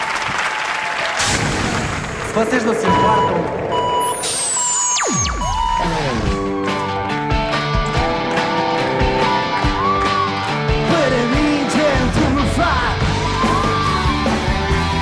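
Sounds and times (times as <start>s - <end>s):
drums: 1.2s - 15.0s
man singing: 10.7s - 13.2s.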